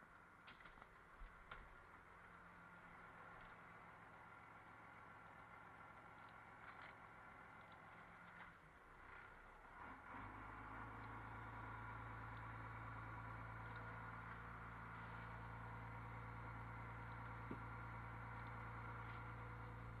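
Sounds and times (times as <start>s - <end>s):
boat engine humming: 11.1s - 20.0s.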